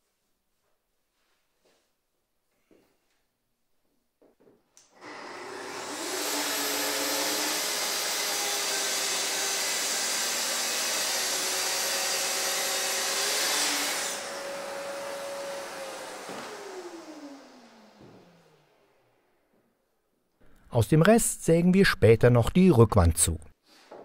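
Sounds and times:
dust extractor running: 5.0s - 18.7s
circular saw whining: 5.0s - 19.1s.

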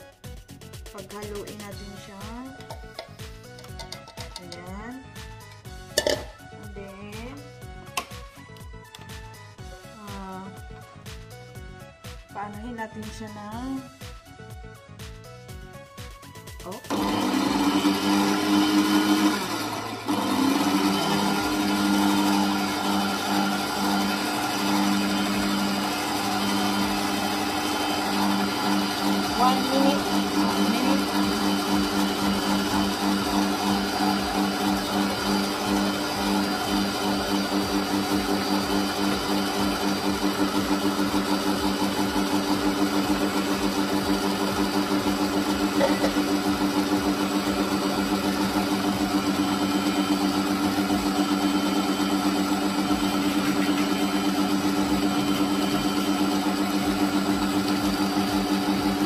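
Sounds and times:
electric stand mixer running: 16.7s - 59.0s.

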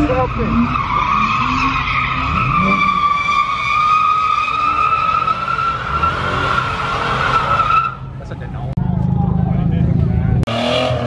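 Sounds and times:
tyres screeching on asphalt: 0.0s - 8.7s.

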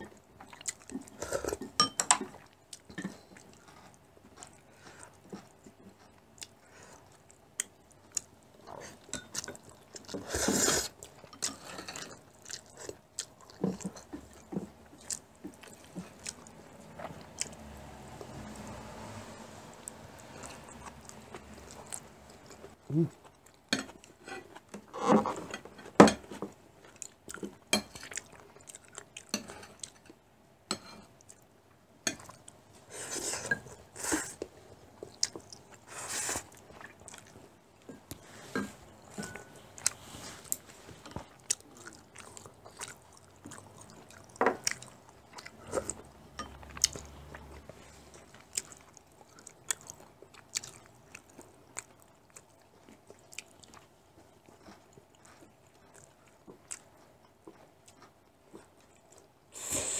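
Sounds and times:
chewing and biting: 2.3s - 18.7s, 26.8s - 30.1s, 39.0s - 59.3s
hissy slurps: 59.5s - 59.9s.

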